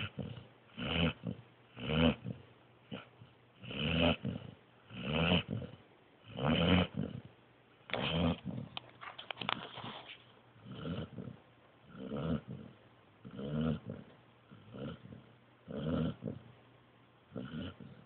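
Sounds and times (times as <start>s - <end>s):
puppy snoring: 0.0s - 8.8s, 10.6s - 16.6s, 17.3s - 18.0s.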